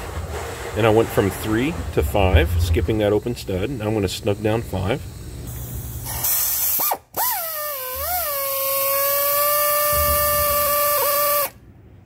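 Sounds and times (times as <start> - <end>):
air ratchet whine: 3.1 - 11.6
air hiss: 3.6 - 11.6.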